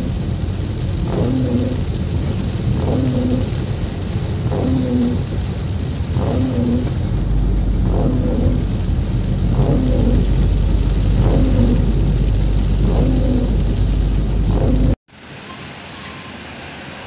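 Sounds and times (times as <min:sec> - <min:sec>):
windshield wipers sweeping: 0:00.0 - 0:15.0
rain on car: 0:00.0 - 0:15.5
engine and tyres on wet road: 0:00.0 - 0:17.0.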